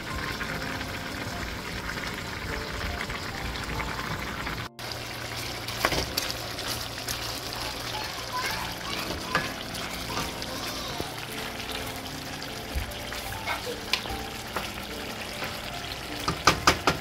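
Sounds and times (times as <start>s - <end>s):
water boiling hard in pot: 0.0s - 17.0s
wooden spoon knocking on pot: 16.2s - 17.0s.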